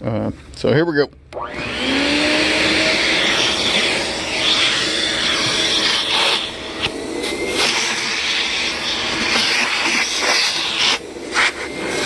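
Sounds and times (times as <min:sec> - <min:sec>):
thin motor whine: 0:01.4 - 0:12.0
vacuum sucking air through hose: 0:01.5 - 0:12.0.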